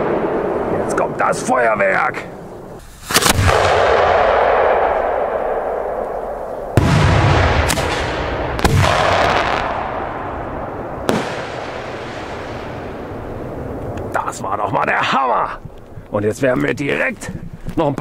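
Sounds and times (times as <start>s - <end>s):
firework shells bursting: 2.8s - 14.2s.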